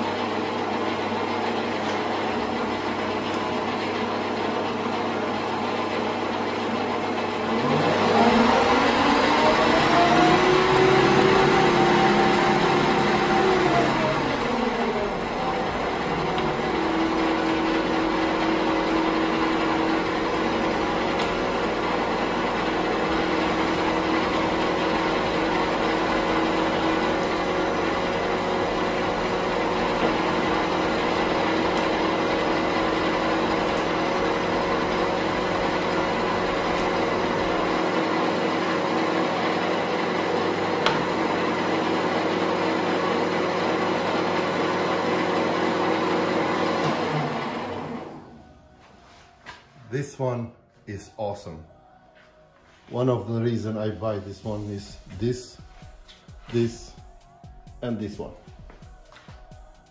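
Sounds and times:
metal lathe humming: 0.0 - 48.4.

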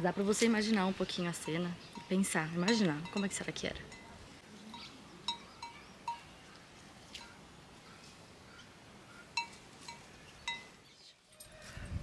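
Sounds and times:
cow bell clinking: 1.4 - 6.3, 9.4 - 10.8.

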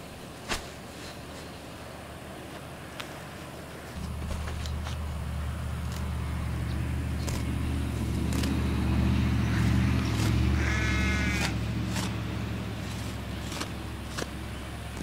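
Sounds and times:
truck engine idling: 4.0 - 15.0.

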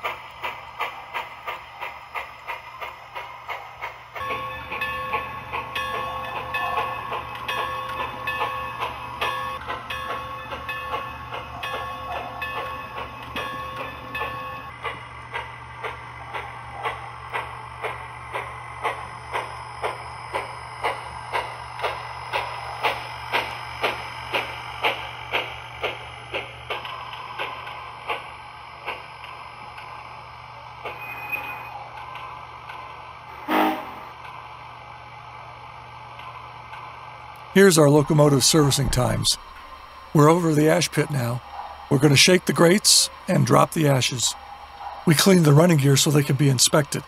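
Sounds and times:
locomotive bell ringing: 4.2 - 14.7, 33.3 - 34.1, 37.6 - 39.4, 40.2 - 44.4
steam exhaust chuffs: 37.4 - 47.0.

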